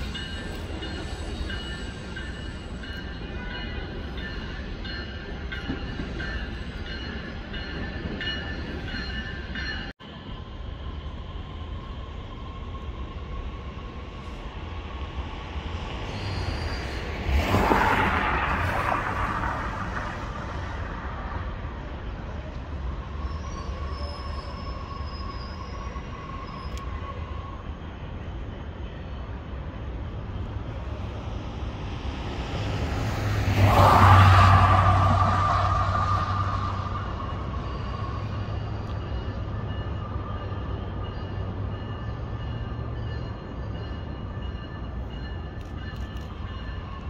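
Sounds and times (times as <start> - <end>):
electric train rumbling on tracks: 0.0 - 47.0
high wheel squeals: 15.7 - 18.0, 22.8 - 27.8, 32.6 - 44.8.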